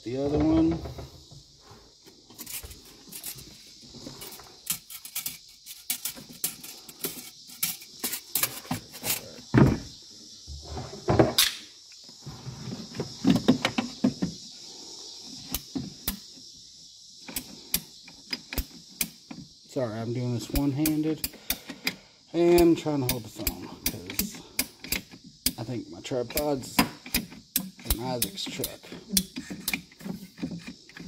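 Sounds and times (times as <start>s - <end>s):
tools clicking and clattering: 4.2s - 9.3s, 20.4s - 25.6s, 26.3s - 31.0s.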